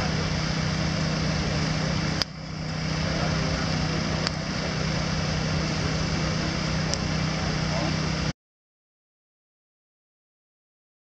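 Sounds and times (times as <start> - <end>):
fan motor hum: 0.0 - 8.3
rush of air and flame: 0.0 - 8.3
fire popping: 2.1 - 2.8, 4.2 - 5.2, 6.8 - 7.2.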